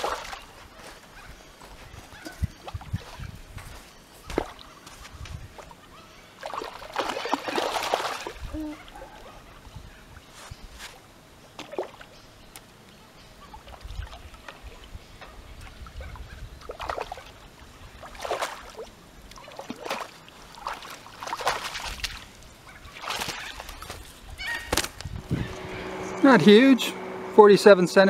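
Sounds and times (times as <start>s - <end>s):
fish splashing in water: 0.0s - 0.5s, 6.4s - 8.4s, 15.6s - 24.8s.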